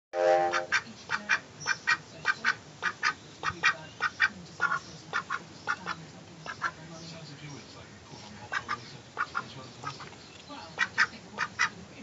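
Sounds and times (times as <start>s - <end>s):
duck quacking: 0.2s - 6.8s, 8.5s - 10.1s, 10.8s - 11.8s.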